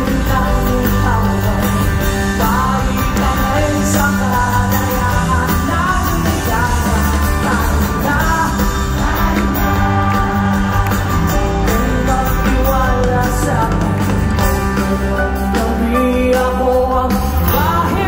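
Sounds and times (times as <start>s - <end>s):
live rock band playing: 0.0s - 18.0s
person singing: 0.0s - 18.0s
steady bass: 0.0s - 18.0s.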